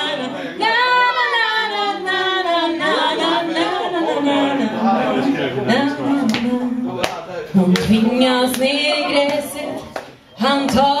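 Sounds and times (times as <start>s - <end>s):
woman singing: 0.0s - 4.7s, 5.7s - 7.0s, 7.6s - 11.0s.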